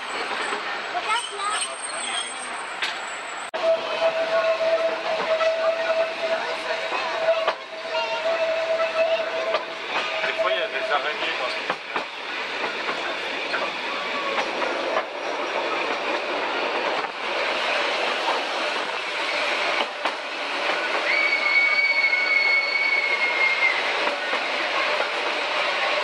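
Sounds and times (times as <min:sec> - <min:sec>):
high wheel squeal: 0:00.0 - 0:10.4, 0:20.9 - 0:24.2
train wheels rattling on rail: 0:00.0 - 0:26.0.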